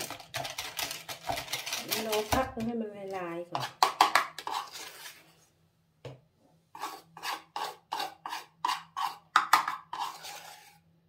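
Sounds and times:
metal spoon scraping a bowl: 3.6s - 5.2s, 6.8s - 10.9s.

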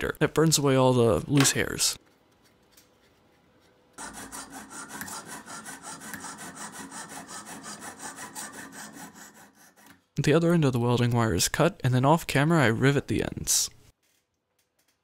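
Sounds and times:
hand saw cutting metal: 4.0s - 10.0s.

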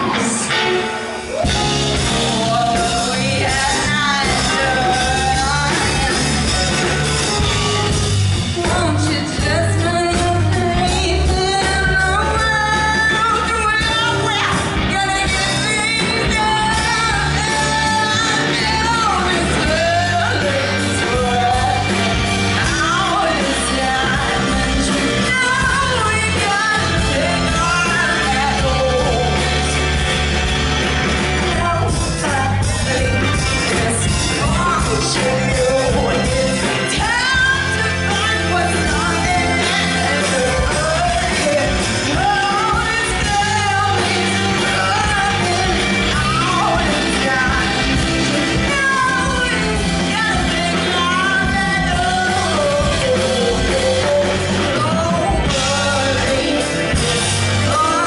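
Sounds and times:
woman singing: 0.0s - 30.4s, 31.4s - 58.0s
live funk band playing: 0.0s - 58.0s.

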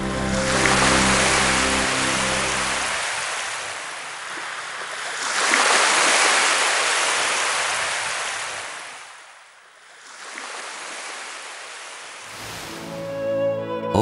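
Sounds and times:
waves washing in: 0.0s - 13.2s.

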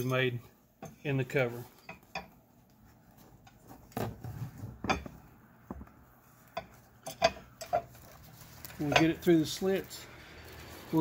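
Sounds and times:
metallic clinks and knocks: 4.7s - 5.9s, 6.5s - 8.1s.

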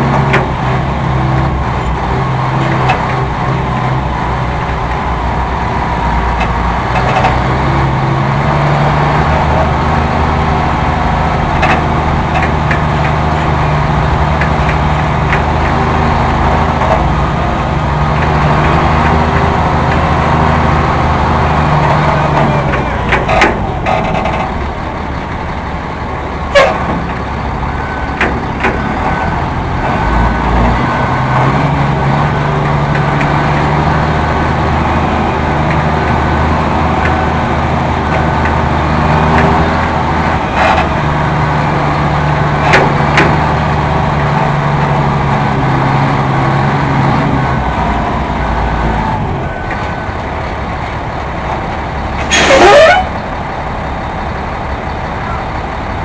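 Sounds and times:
diesel truck engine running: 0.0s - 56.0s
sharp clicks or knocks: 6.4s - 7.5s, 21.7s - 24.7s, 28.1s - 29.2s.

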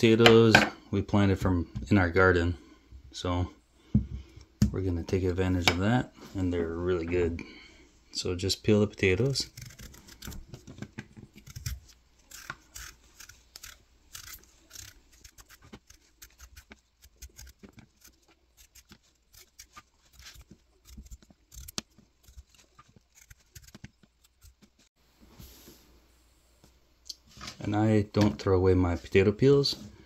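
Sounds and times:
knife peeling potato: 9.0s - 24.9s.

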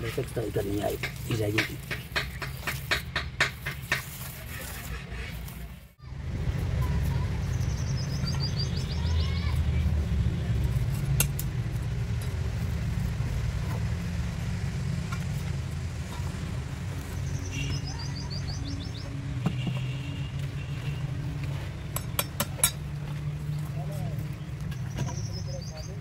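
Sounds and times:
low engine rumble: 0.0s - 26.0s
bird chirps: 7.4s - 9.6s, 17.1s - 19.2s, 24.7s - 26.0s.

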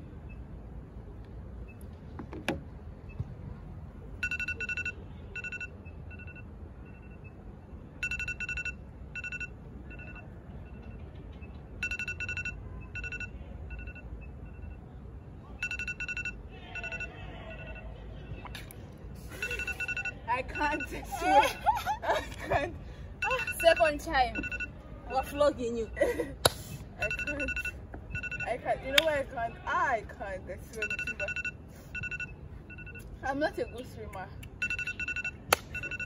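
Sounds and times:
phone alarm beeping: 4.2s - 7.4s, 8.0s - 10.9s, 11.8s - 14.8s, 15.6s - 17.8s, 19.4s - 21.7s, 23.2s - 25.4s, 27.0s - 28.8s, 30.8s - 33.8s, 34.6s - 36.0s.

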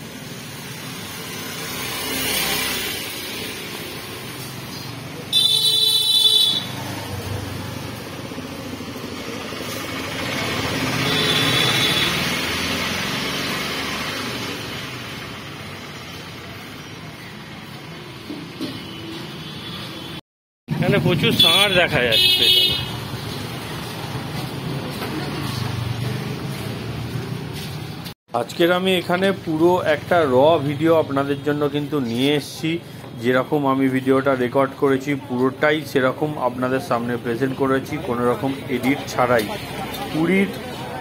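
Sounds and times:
motorbikes and scooters passing: 0.0s - 5.4s, 6.4s - 28.1s, 36.5s - 41.0s
high-pitched vehicle horn: 5.3s - 6.8s, 11.0s - 12.3s, 21.4s - 23.0s.

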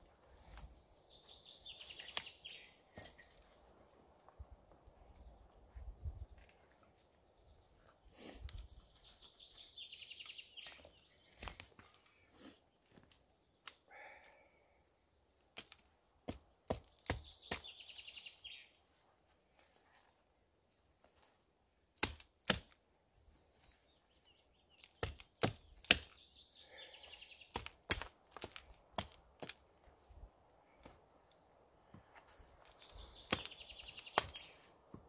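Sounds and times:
axe chopping wood: 15.6s - 17.7s, 22.0s - 22.8s, 24.8s - 26.2s, 27.5s - 29.6s, 33.3s - 34.5s.

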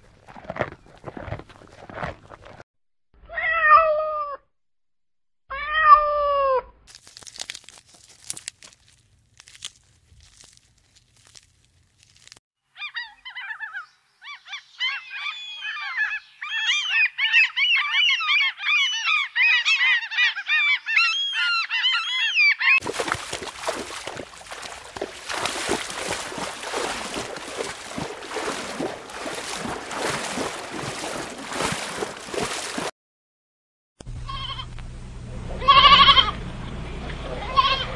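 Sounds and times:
gulls calling: 12.8s - 32.9s.

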